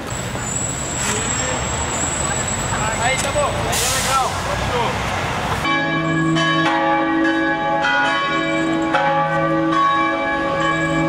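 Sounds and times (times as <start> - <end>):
street noise: 0.0 - 11.0
church bells ringing: 5.6 - 11.0.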